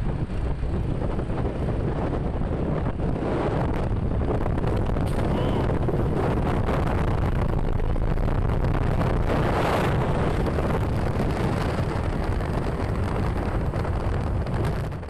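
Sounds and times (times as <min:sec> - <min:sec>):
road and vehicle noise: 0:00.0 - 0:15.0
wind buffeting microphone: 0:00.0 - 0:15.0.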